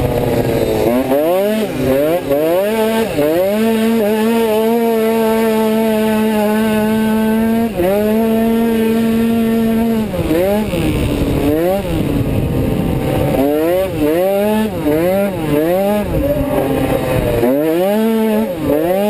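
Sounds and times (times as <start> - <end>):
scooter engine revving: 0.0 - 19.0.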